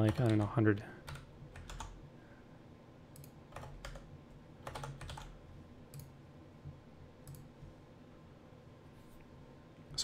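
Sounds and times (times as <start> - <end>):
computer keyboard typing: 0.0 - 2.0, 3.2 - 6.1
faint low hum: 0.0 - 10.0.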